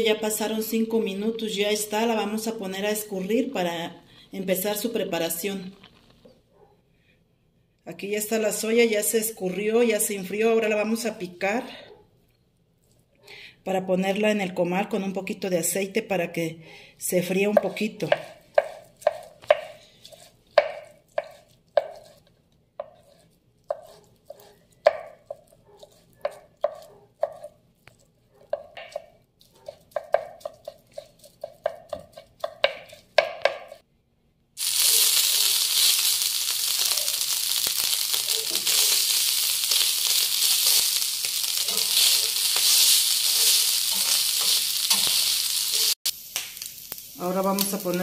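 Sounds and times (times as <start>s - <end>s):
knife chopping on wooden board: 17.6s - 22.2s, 22.8s - 27.6s, 28.5s - 33.8s
food sizzling in oil: 34.6s - 48.0s.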